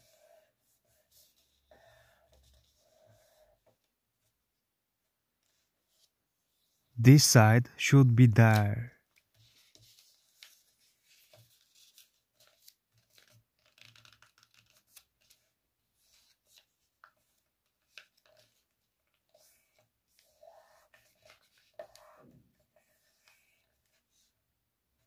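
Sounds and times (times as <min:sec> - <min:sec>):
paper rustling and crackling: 0:09.1 - 0:22.0.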